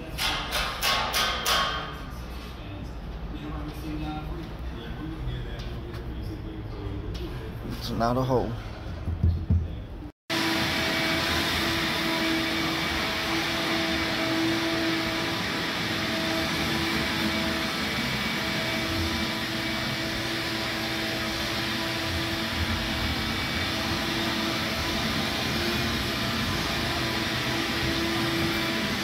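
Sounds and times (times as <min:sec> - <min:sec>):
blower machine noise: 0:10.3 - 0:29.0.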